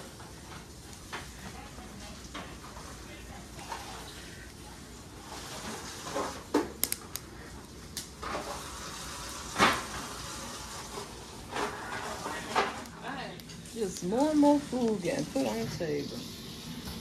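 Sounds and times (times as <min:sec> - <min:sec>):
food sizzling on a grill: 0:05.2 - 0:06.6, 0:08.2 - 0:17.0.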